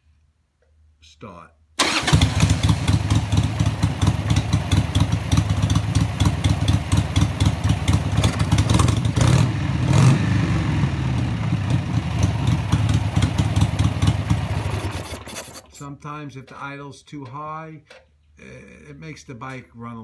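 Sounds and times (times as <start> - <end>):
motorcycle engine idling: 1.8 - 15.3.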